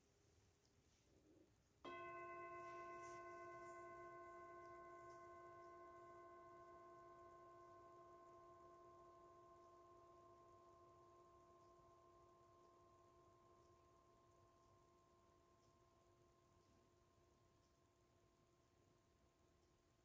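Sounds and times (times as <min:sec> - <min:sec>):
singing bowl ringing: 0:01.8 - 0:17.8.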